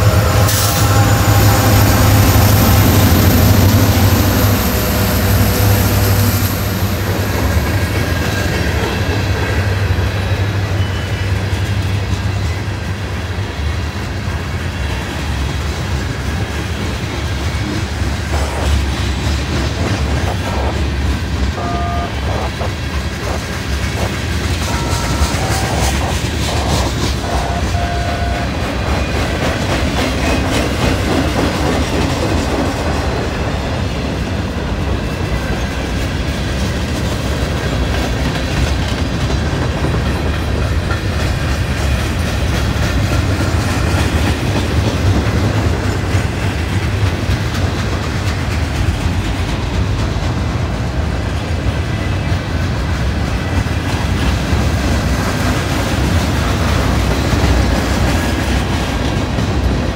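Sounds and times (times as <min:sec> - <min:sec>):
train wheel squeals: 0:00.0 - 0:13.9, 0:14.7 - 0:31.8
freight train rumbling: 0:00.0 - 0:59.9.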